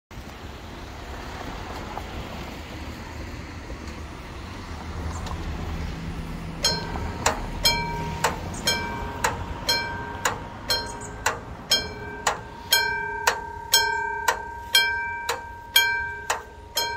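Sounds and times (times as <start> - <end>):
road traffic noise: 0.1 - 16.9
level crossing warning bell ringing: 6.6 - 16.9.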